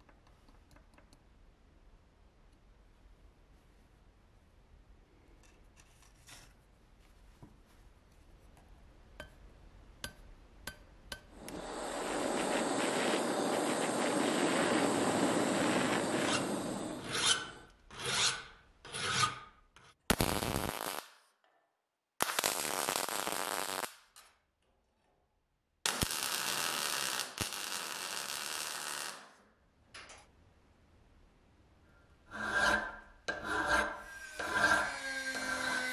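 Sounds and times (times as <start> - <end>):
abrasive rasping and rubbing: 11.4 - 19.4, 32.3 - 35.9.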